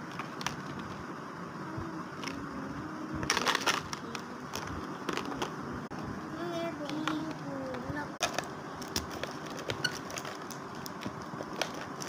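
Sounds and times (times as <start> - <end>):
plastic packaging crinkling: 3.2 - 5.5, 8.2 - 12.0.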